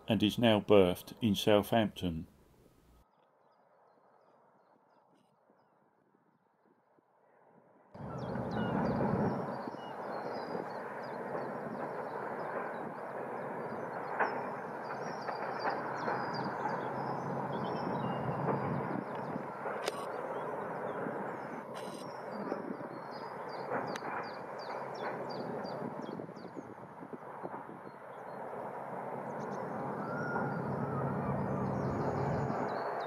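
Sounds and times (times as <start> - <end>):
sharp clicks: 19.8 - 20.2.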